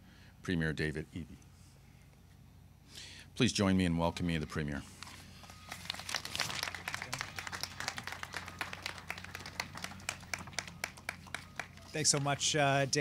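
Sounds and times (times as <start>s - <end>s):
audience applauding: 5.4s - 12.6s.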